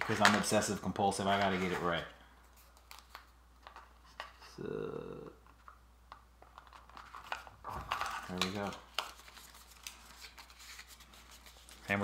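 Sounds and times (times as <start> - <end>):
person humming: 4.6 - 5.3.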